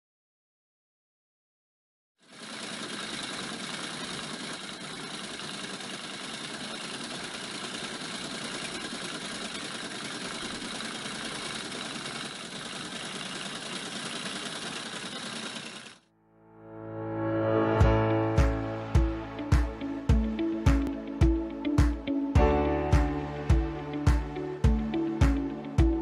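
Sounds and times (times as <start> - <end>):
rapid mechanical clatter: 2.2 - 16.1.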